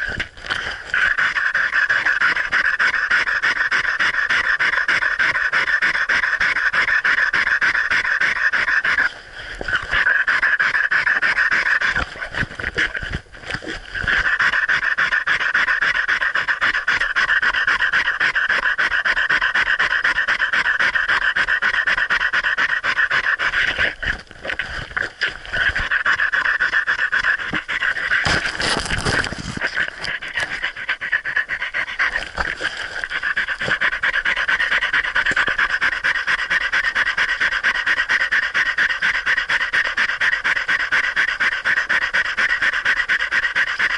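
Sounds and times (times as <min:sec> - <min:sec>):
dog panting: 0:00.0 - 0:43.9.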